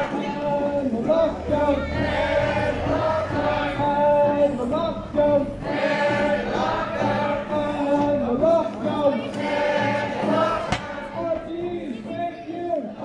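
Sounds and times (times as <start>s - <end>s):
crowd singing in unison: 0.0s - 11.8s
brief knock: 10.7s - 11.0s.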